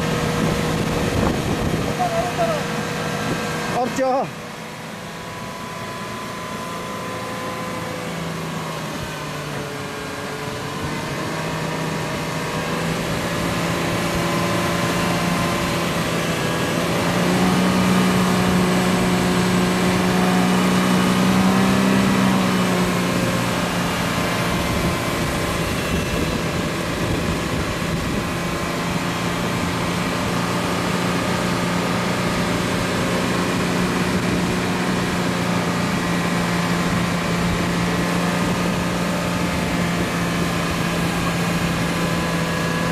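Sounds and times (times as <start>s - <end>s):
winch motor whining: 0.0s - 42.9s.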